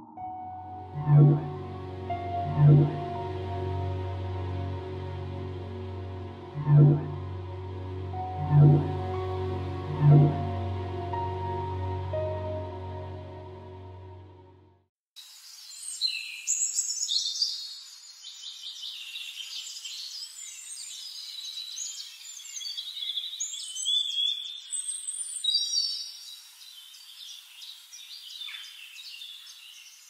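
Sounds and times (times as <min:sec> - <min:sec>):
songbirds chirping and trilling: 0:15.4 - 0:30.0.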